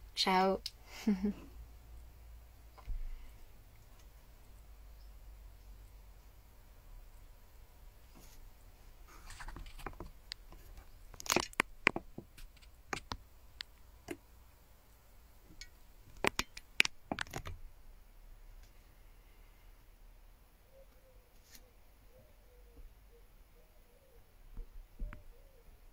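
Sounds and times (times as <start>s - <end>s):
soft rustle: 7.9s - 13.9s, 21.3s - 21.8s
handling clicks and crackles: 9.2s - 14.2s, 15.5s - 17.6s.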